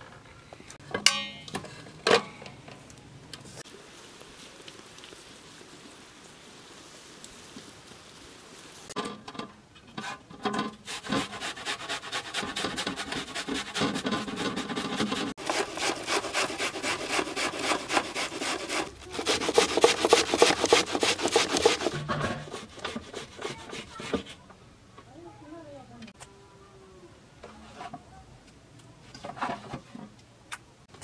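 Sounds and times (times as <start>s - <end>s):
onion grated on metal grater: 10.9s - 24.4s.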